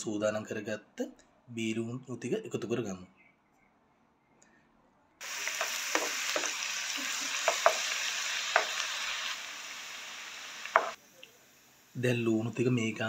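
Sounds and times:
onion sizzling in hot oil: 5.2s - 13.0s.

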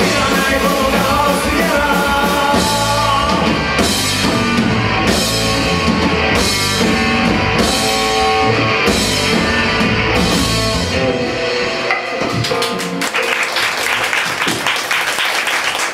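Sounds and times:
live rock band playing: 0.0s - 14.9s
audience applauding: 12.4s - 15.9s.

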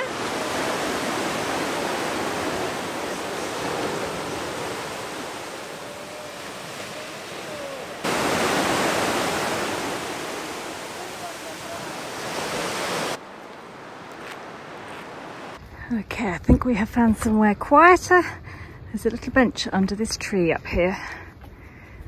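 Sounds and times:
sea waves breaking on beach: 0.0s - 15.6s.

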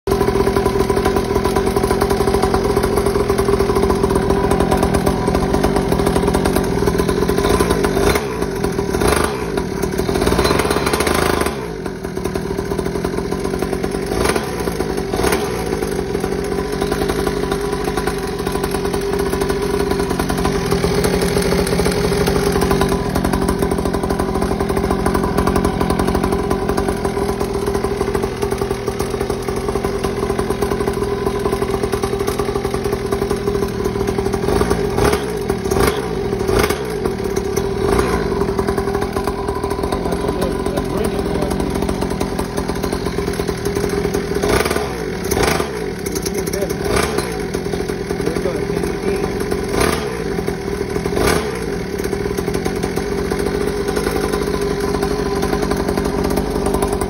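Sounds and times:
pit bike engine idling: 0.1s - 57.0s.

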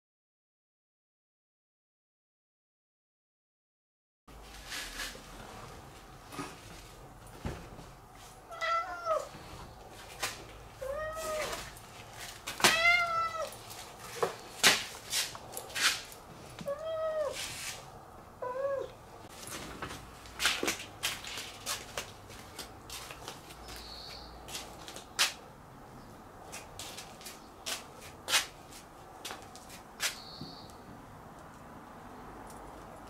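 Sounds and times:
cat meowing: 8.5s - 9.4s, 10.8s - 11.7s, 12.6s - 13.6s, 16.6s - 17.4s, 18.4s - 19.0s.

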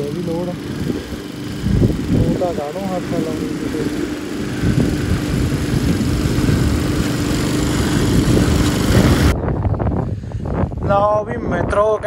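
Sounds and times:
lawn mower engine running: 0.0s - 9.4s.

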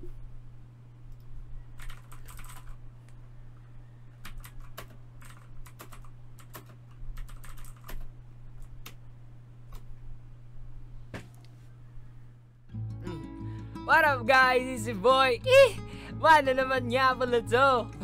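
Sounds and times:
steady low hum: 0.0s - 18.0s
keyboard typing: 1.8s - 2.8s, 4.2s - 9.0s.

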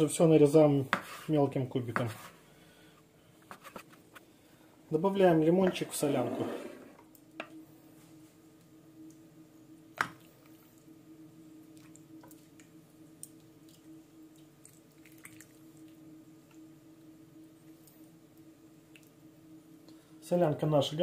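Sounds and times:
soup sloshing and dripping: 11.7s - 16.0s.

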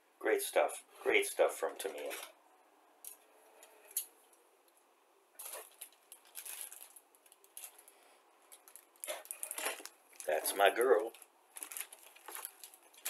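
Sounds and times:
plastic bag rustling: 5.4s - 13.0s.

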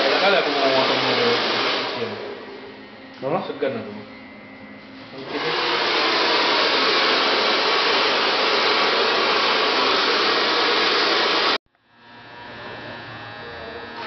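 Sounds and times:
hair dryer blowing: 0.0s - 2.6s, 5.1s - 11.6s.

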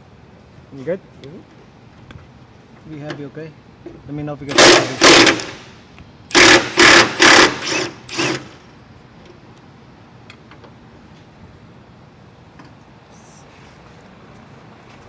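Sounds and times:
cordless power tool bursts: 4.5s - 5.7s, 6.3s - 8.6s.

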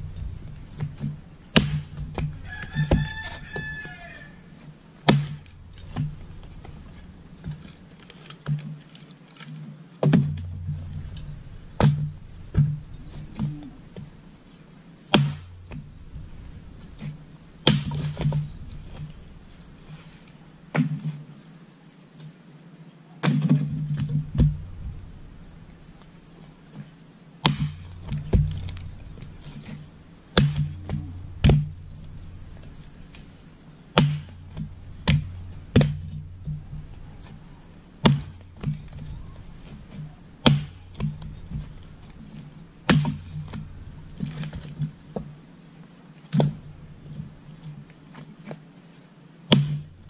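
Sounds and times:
axe chopping wood: 0.0s - 4.3s, 5.0s - 8.7s, 10.0s - 14.2s, 15.1s - 20.0s, 20.7s - 21.2s, 23.2s - 25.4s, 27.4s - 45.3s, 46.3s - 47.3s, 49.5s - 50.0s
birds chirping: 0.0s - 50.0s.

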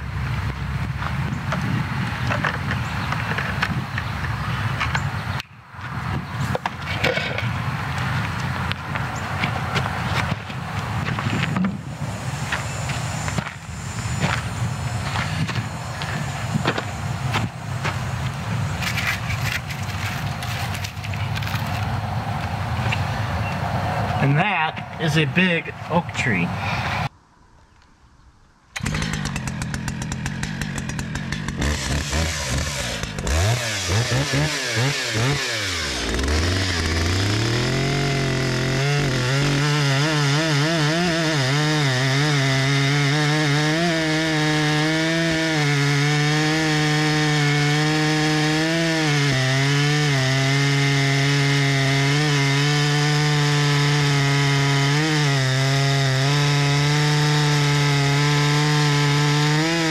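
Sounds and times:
chainsaw revving and cutting: 28.8s - 59.9s.

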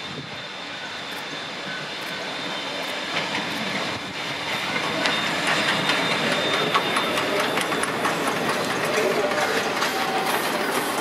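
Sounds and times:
steam train hissing: 0.0s - 11.0s
wheels clicking over rails: 2.8s - 11.0s.

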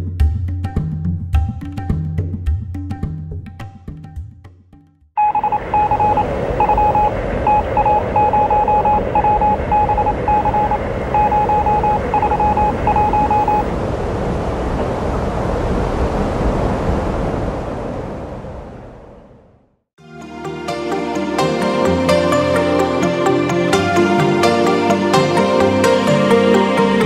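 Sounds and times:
morse code beeps: 5.2s - 13.7s.

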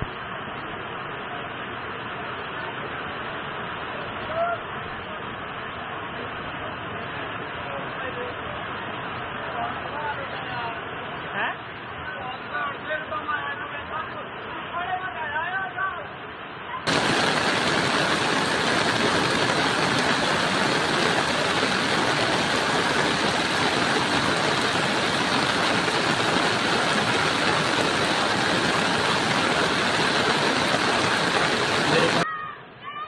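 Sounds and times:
flood water rushing: 16.9s - 32.2s.

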